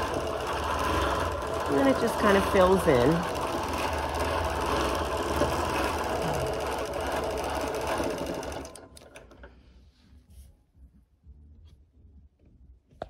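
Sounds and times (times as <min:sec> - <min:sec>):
sewing machine stitching: 0:00.0 - 0:09.5.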